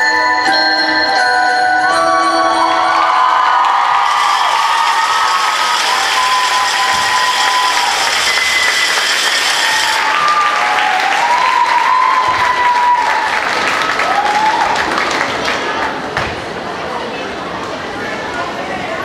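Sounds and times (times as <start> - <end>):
high-pitched cheers and shouts: 2.1 - 14.9
audience applauding: 2.6 - 16.2.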